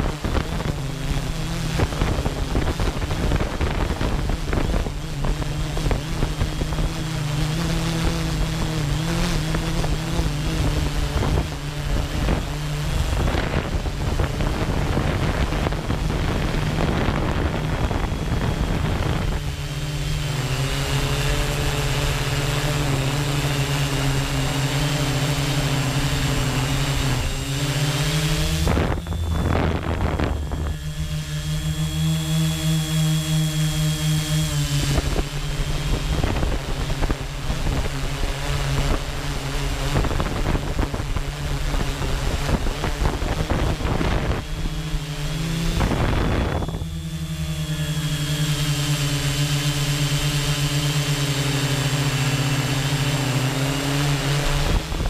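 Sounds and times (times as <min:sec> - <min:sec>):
wind buffeting microphone: 0:00.0 - 0:50.5
drone propellers humming: 0:00.0 - 0:55.0
high whine: 0:00.0 - 0:55.0.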